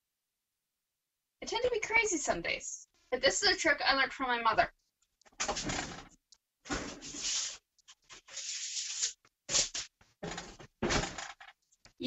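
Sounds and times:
foil baking sheet scraping and rustling: 6.7s - 9.9s.

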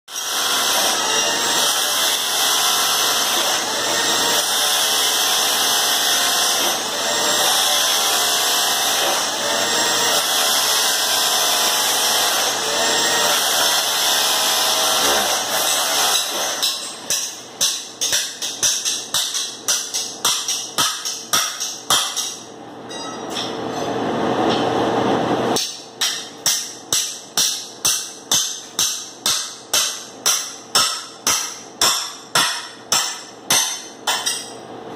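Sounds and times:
hammer striking wood floor: 14.9s - 22.4s, 25.6s - 34.6s.

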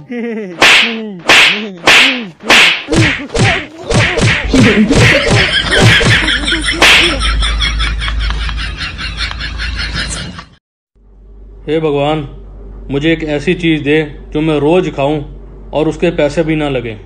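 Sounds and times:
loud crack: 0.6s - 6.2s
loud slaps: 0.6s - 7.2s.

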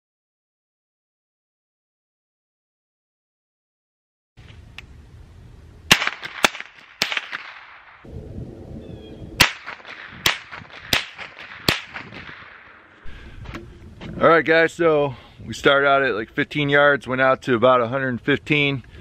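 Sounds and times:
rifle shots: 5.9s - 8.1s, 9.4s - 13.0s.

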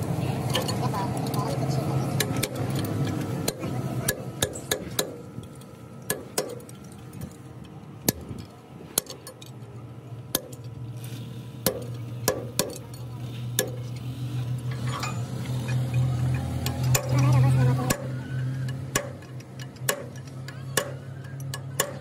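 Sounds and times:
metal-on-metal clinks: 14.6s - 18.0s.

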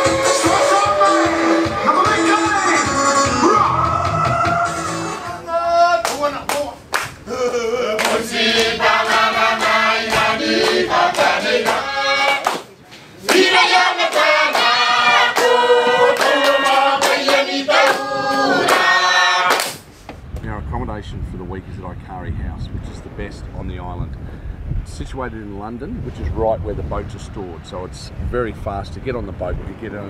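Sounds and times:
choir singing: 0.0s - 5.4s, 7.5s - 12.4s, 13.2s - 19.6s
hand claps: 8.0s - 14.7s, 19.5s - 19.8s.

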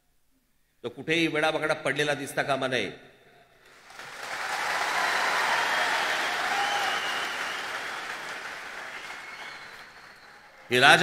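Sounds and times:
large crowd applauding: 3.7s - 11.0s.

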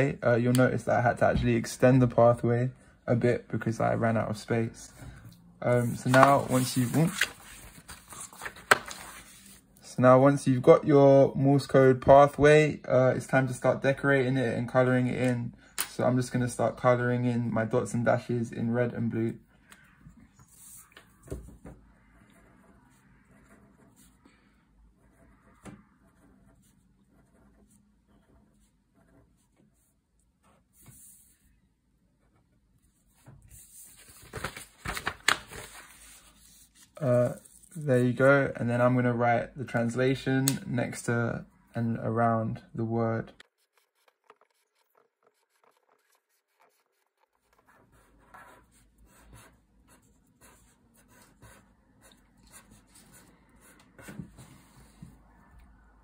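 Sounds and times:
pen scratching and tapping on paper: 43.4s - 50.5s.

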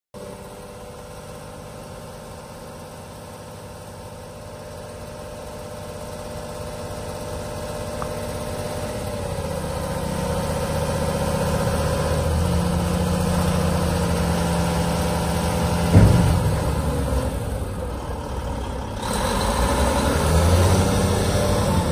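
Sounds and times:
diesel engine revving under load: 5.5s - 21.9s.

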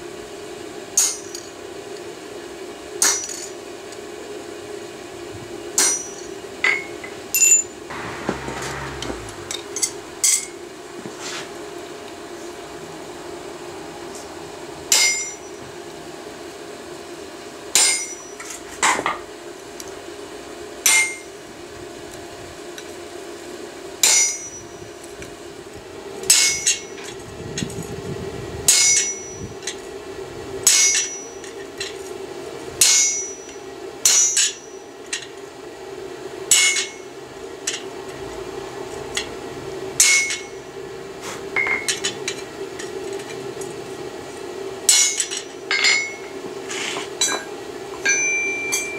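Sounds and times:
steady hum: 7.8s - 14.7s
hammer ringing on chisel: 48.0s - 48.9s.

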